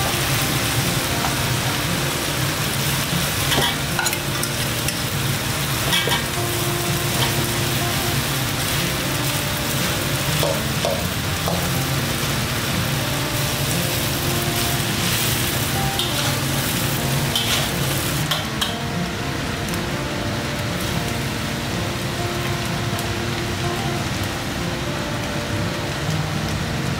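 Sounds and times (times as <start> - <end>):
rice sizzling in wok: 0.0 - 26.9
spatula scraping wok: 2.8 - 7.4, 13.6 - 18.7
utensils clinking against wok: 3.3 - 5.2, 5.8 - 7.5, 10.4 - 11.8, 14.8 - 18.9.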